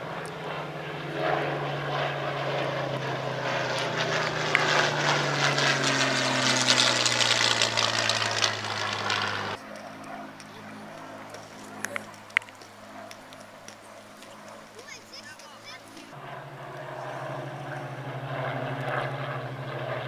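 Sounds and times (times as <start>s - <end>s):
propeller plane engine droning: 0.0s - 20.0s.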